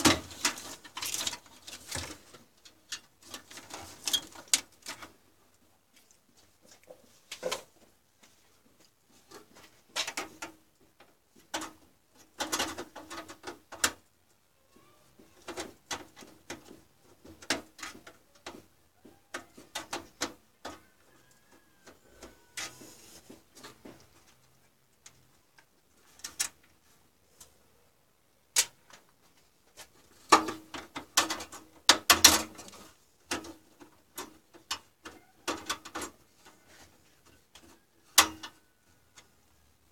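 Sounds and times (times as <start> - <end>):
clicks and clatter of computer parts: 11.4 - 14.0, 30.2 - 36.2.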